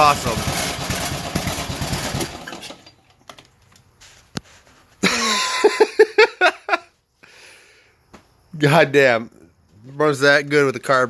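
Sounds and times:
lawn tractor engine shutting off: 0:00.0 - 0:03.2
burst of laughter: 0:05.0 - 0:06.9.

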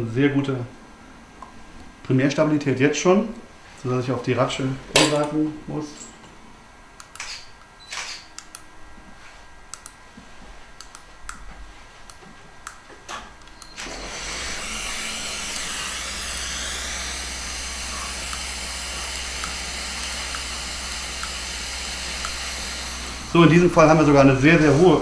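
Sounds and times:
low hum: 0:13.8 - 0:25.0
surgical suction hissing: 0:13.8 - 0:25.0
torque ratchet clicking: 0:14.5 - 0:23.4.

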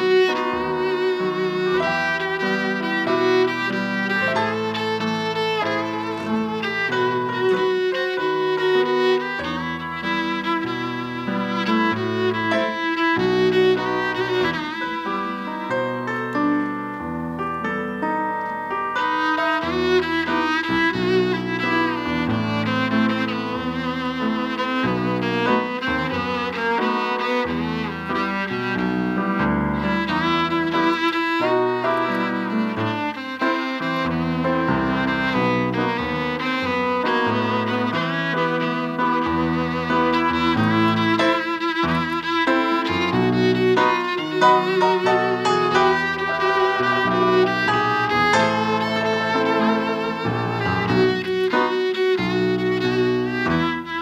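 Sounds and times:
lower accompanying notes: 0:00.0 - 0:53.9
bowed violin melody: 0:00.0 - 0:54.0.

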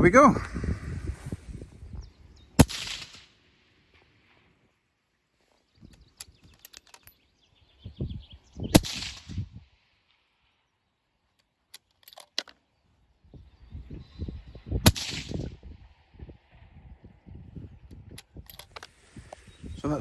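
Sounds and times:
rifle shots with echo: 0:02.6 - 0:03.4, 0:08.7 - 0:09.4, 0:14.8 - 0:15.5.

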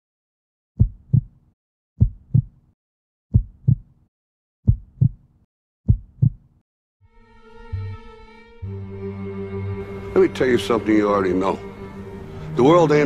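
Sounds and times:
heartbeat thumps: 0:00.8 - 0:01.4, 0:02.0 - 0:02.6, 0:03.3 - 0:04.0, 0:04.6 - 0:06.5.

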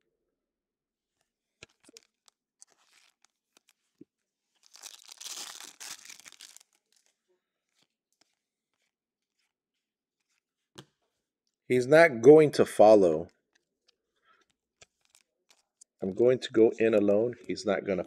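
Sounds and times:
cards rustling crinkly: 0:01.2 - 0:09.6, 0:13.5 - 0:16.2.

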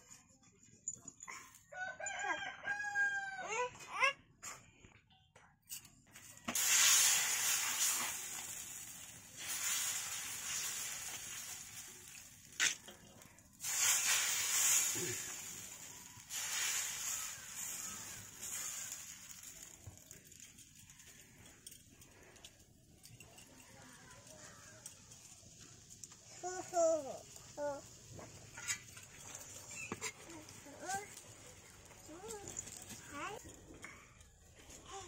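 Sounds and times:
batter sizzling on griddle: 0:06.5 - 0:33.4.

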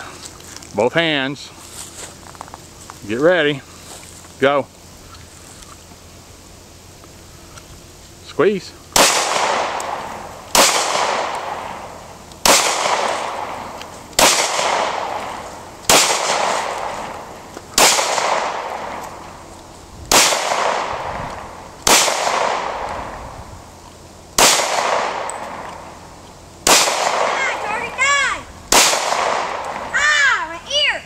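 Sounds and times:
pistol shots with echo: 0:09.0 - 0:16.9, 0:17.8 - 0:19.0, 0:20.1 - 0:22.9, 0:24.4 - 0:25.6, 0:26.6 - 0:27.4, 0:28.7 - 0:29.9.

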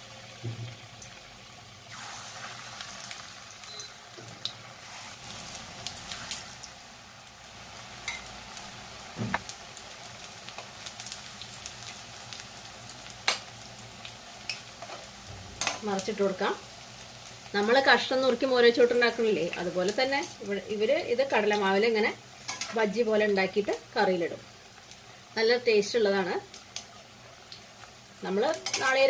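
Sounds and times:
batter deep-frying in oil: 0:00.0 - 0:29.0
oil crackles and pop: 0:08.1 - 0:14.6, 0:26.4 - 0:28.7.

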